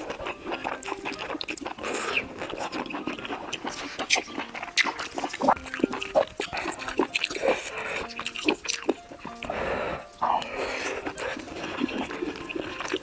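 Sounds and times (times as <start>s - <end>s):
wet chewing and smacking: 0.0s - 13.0s.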